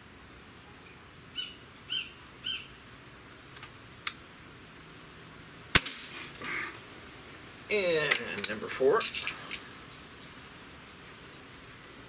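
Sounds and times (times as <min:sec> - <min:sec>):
bird chirping: 0:00.6 - 0:02.8
air rifle shot: 0:05.7 - 0:06.3.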